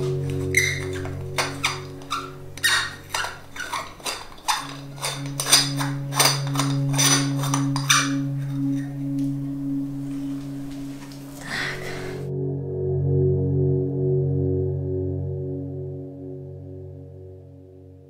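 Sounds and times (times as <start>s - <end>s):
low music drone: 0.0s - 18.0s
light bulb squeaking in socket: 0.2s - 8.9s.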